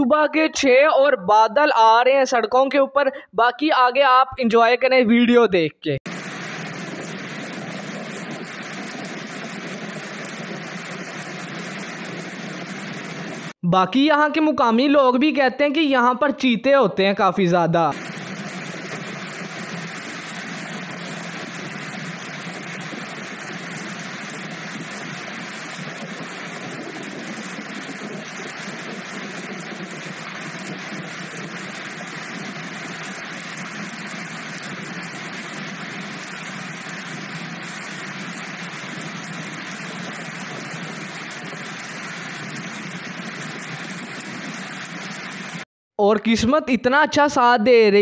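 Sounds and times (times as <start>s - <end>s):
falling rain: 6.1s - 13.6s, 17.9s - 45.7s
tyres hissing on wet road: 6.1s - 13.6s, 18.0s - 45.6s.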